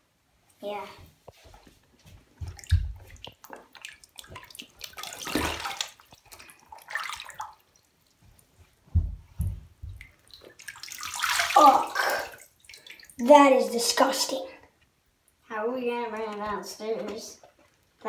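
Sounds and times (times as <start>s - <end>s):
bathtub water sloshing: 0.6s - 14.6s
dull low thumps: 8.9s - 10.1s.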